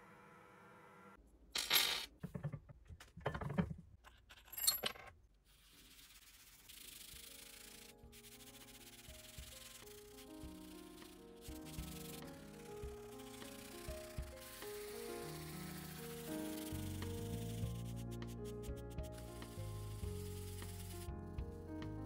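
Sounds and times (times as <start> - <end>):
cloth dauber rubbing leather: 5.5 - 21.1.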